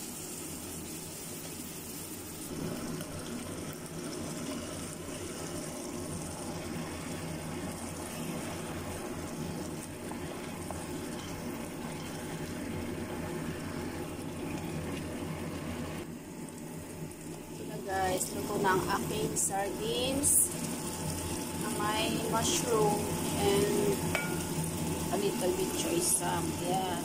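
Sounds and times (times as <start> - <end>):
sauce simmering in a pan: 0.0 - 27.0.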